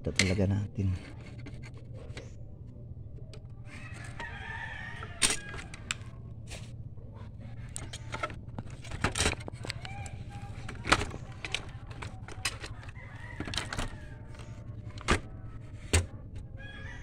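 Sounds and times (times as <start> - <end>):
low steady hum: 0.0 - 17.0
rooster crowing: 3.7 - 6.2, 12.7 - 14.6, 16.5 - 17.0.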